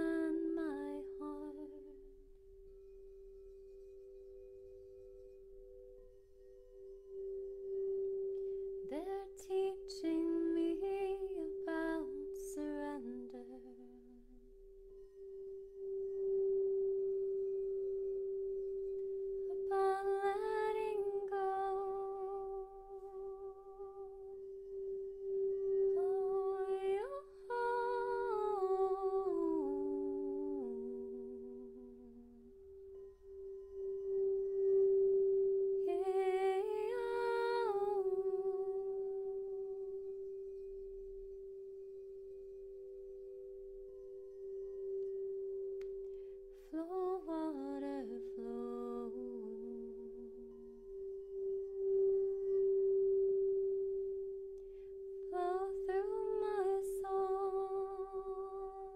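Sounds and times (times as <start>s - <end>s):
woman singing wordless tones: 0.0s - 2.1s, 8.8s - 14.6s, 19.3s - 34.4s, 35.8s - 40.7s, 46.6s - 53.3s, 54.5s - 58.9s
singing bowl ringing: 0.0s - 58.9s.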